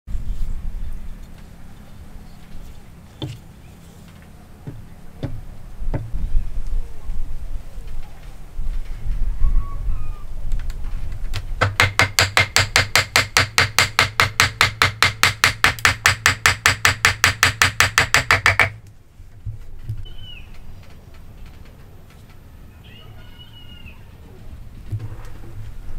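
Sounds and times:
hammer tapping on wood: 0:11.6 - 0:18.8.

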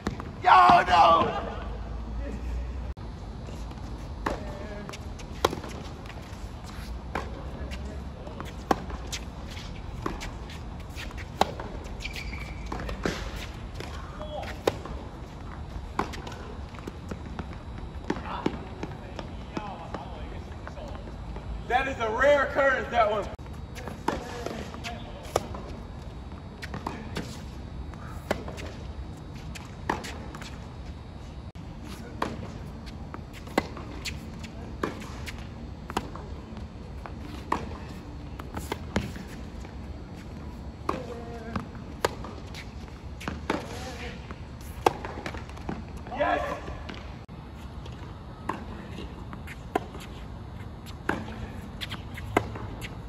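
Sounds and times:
tennis ball bouncing: 0:26.6 - 0:27.4, 0:37.0 - 0:37.8, 0:40.8 - 0:43.8, 0:44.6 - 0:46.0, 0:47.8 - 0:52.9
racket striking tennis ball: 0:37.2 - 0:37.8, 0:44.6 - 0:45.8, 0:50.9 - 0:52.9
rackets striking tennis ball: 0:47.8 - 0:53.0.

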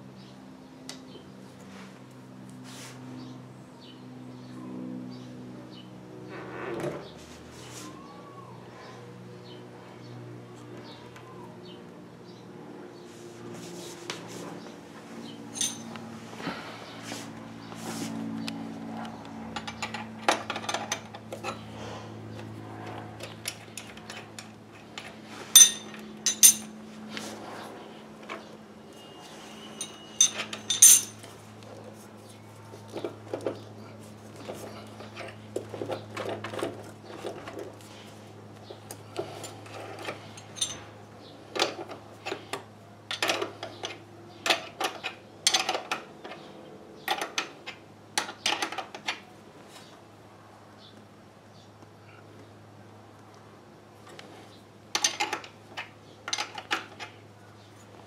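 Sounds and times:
steady low hum: 0:00.0 - 0:44.4
sharp metal clanks: 0:15.5 - 0:16.0, 0:25.6 - 0:26.8, 0:29.7 - 0:31.2
wrench clinking on metal nuts: 0:15.5 - 0:16.0, 0:25.6 - 0:26.8, 0:29.7 - 0:31.3, 0:40.3 - 0:40.9.

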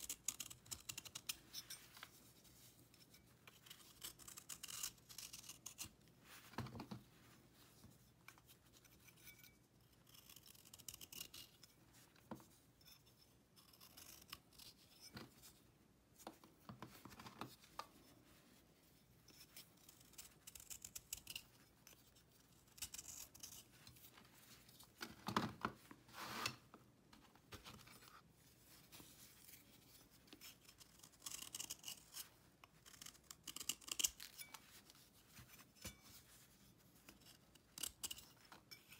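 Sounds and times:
knife scraping paste cake: 0:00.0 - 0:06.0, 0:08.3 - 0:11.8, 0:12.8 - 0:15.5, 0:19.3 - 0:24.2, 0:29.1 - 0:38.9.

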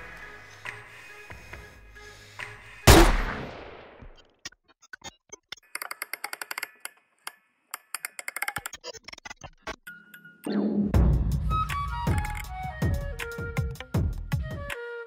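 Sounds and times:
handgun shot with echo: 0:02.9 - 0:04.0
typing on computer keyboard: 0:05.7 - 0:07.0, 0:07.8 - 0:08.8.

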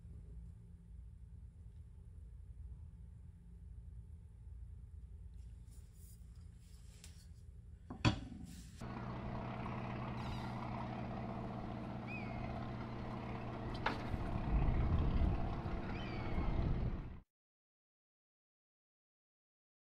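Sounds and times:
boat engine running: 0:08.8 - 0:17.2
high bird calls: 0:09.4 - 0:17.1.

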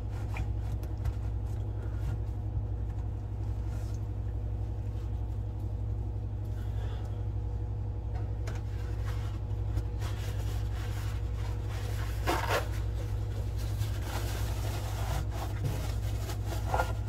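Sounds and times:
steady low hum: 0:00.0 - 0:17.0
paper towels scraping and rustling: 0:08.6 - 0:17.0.

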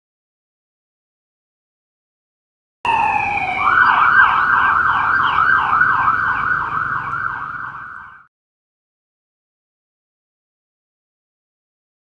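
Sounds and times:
low vehicle rumble: 0:02.9 - 0:08.2
police siren wailing and yelping: 0:02.9 - 0:08.3.

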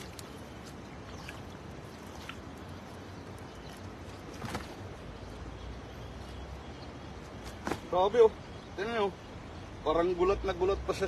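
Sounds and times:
net handled on wet ground: 0:00.0 - 0:05.0.

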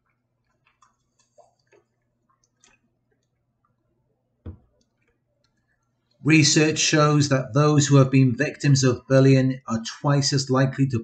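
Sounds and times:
dull thump: 0:04.4 - 0:04.7.

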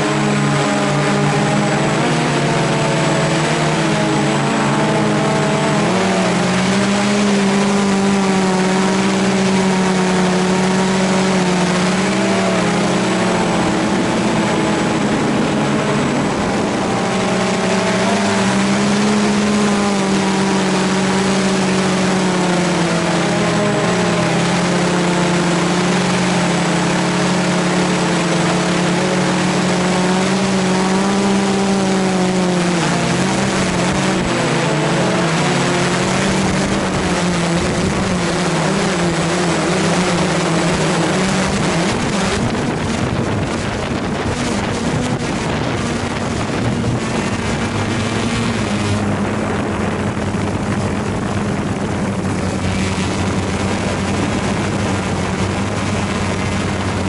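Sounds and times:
quadcopter propellers buzzing: 0:00.0 - 0:57.0
wind buffeting microphone: 0:25.0 - 0:57.0.

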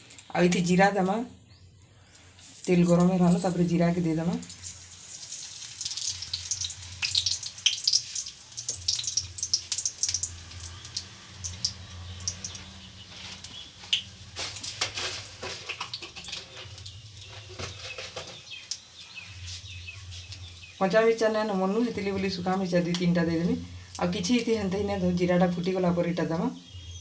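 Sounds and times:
seeds crackling in hot oil: 0:02.1 - 0:20.8.

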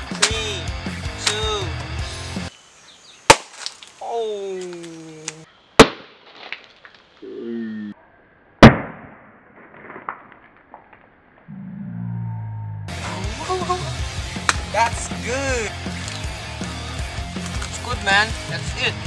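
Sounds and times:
axe whacking onto wood: 0:03.3 - 0:03.8, 0:05.8 - 0:06.6
chips scattering: 0:03.3 - 0:07.1, 0:17.3 - 0:17.8.

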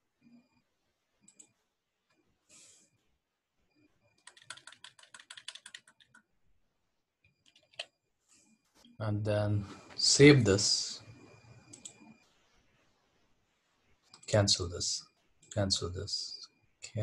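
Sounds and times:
faint keyboard tapping: 0:04.2 - 0:06.3.

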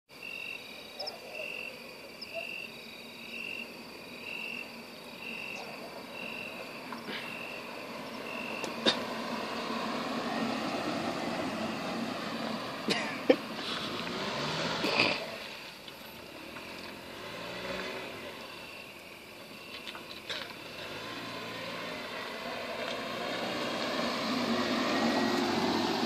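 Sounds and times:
car driving past: 0:06.1 - 0:26.0.

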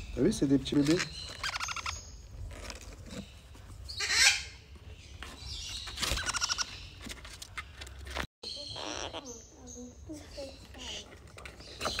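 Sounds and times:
parrot chicks begging calls: 0:00.7 - 0:02.2, 0:03.9 - 0:04.7, 0:05.5 - 0:07.0, 0:08.4 - 0:11.1.

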